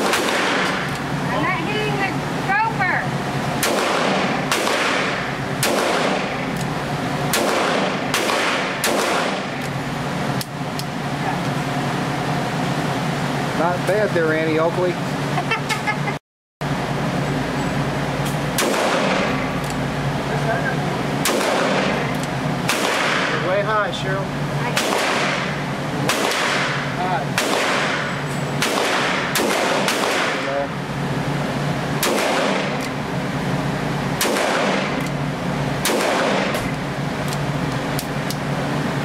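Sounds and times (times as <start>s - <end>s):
gunshots with ringing tail: 0.0s - 0.9s, 3.6s - 6.5s, 7.3s - 9.6s, 18.6s - 19.4s, 21.2s - 22.0s, 22.6s - 23.5s, 24.7s - 30.7s, 32.0s - 32.8s, 34.2s - 35.0s, 35.8s - 36.7s.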